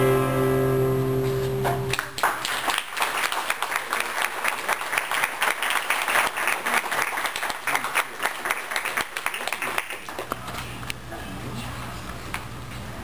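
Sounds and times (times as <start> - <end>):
audience applauding: 1.9 - 10.4.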